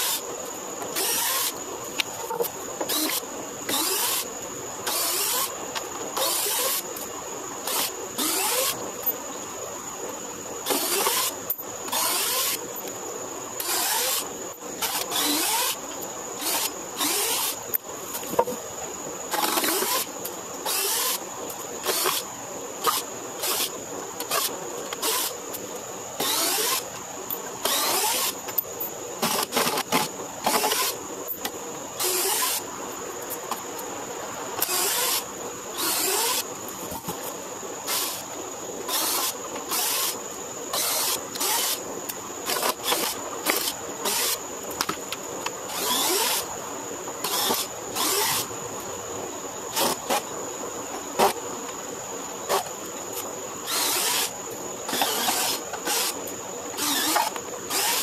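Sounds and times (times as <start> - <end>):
cordless drill backing out screws: 56.8 - 58.0.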